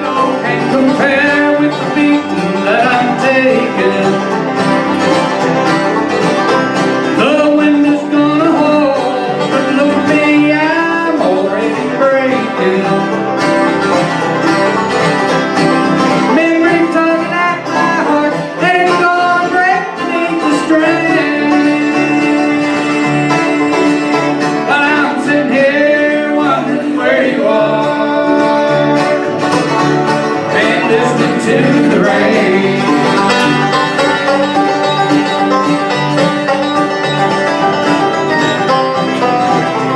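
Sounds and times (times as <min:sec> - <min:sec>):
person singing: 0:00.0 - 0:04.6, 0:07.2 - 0:13.3, 0:16.2 - 0:29.6, 0:30.5 - 0:35.5
acoustic guitars: 0:00.0 - 0:39.9
banjo: 0:00.0 - 0:39.9
mandolin: 0:00.0 - 0:39.9
upright bass: 0:00.0 - 0:39.9.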